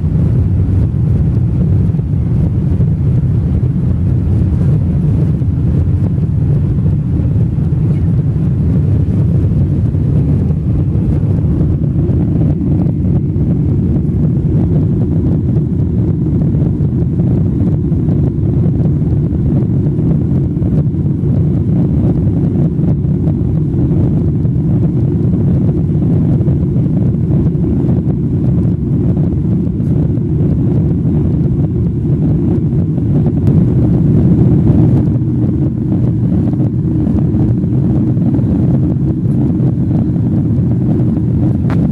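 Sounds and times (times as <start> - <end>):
airliner cabin engine rumble: 0.0 - 41.9.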